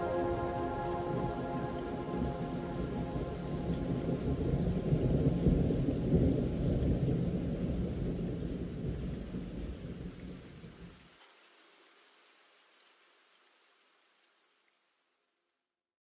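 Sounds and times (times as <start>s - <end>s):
thunder rumbling: 0.0s - 10.2s
steady rain: 0.0s - 15.2s.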